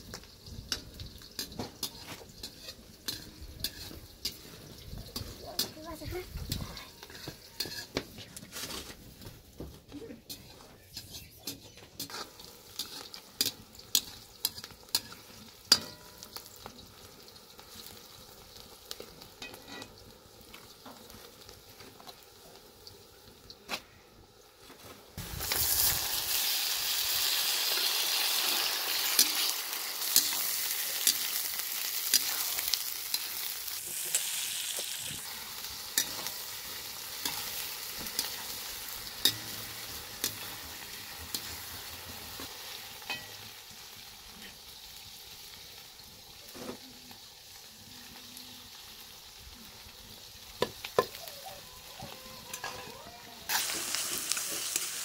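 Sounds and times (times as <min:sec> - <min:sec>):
loud sizzle of tomatoes in oil: 0:00.0 - 0:55.0
onions frying: 0:00.0 - 0:55.0
metal ladle scraping iron pot: 0:00.7 - 0:05.7, 0:06.5 - 0:08.9.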